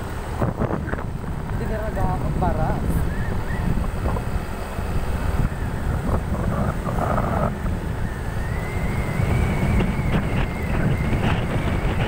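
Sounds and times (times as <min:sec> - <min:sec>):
vehicle driving on concrete road: 0:00.0 - 0:12.0
wind buffeting microphone: 0:00.0 - 0:12.0
faint high whine: 0:03.0 - 0:12.0.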